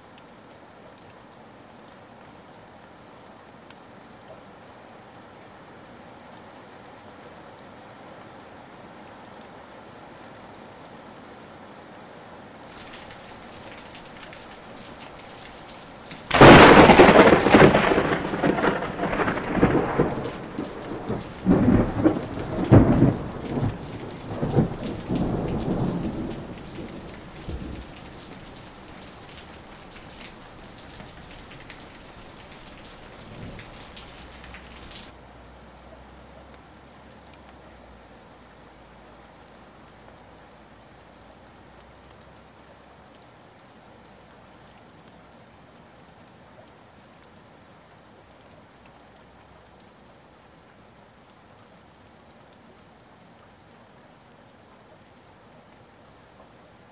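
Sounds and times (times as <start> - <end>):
steady rain: 0.0 - 56.9
thunder rolling: 15.0 - 35.1.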